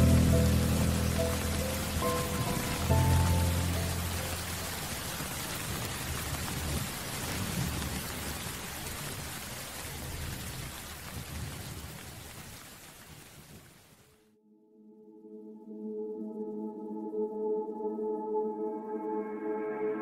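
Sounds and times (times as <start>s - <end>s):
heavy rain on pavement: 0.0s - 14.2s.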